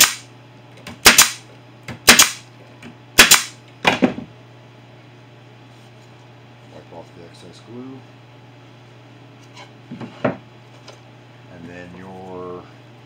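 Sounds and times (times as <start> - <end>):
nail gun shots: 0.0 - 0.3, 1.0 - 1.4, 2.0 - 2.4, 3.2 - 3.6.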